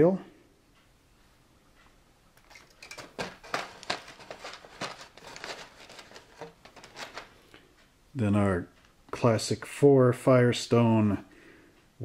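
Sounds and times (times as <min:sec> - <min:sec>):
plastic parts clicking and rustling: 0:02.4 - 0:07.6.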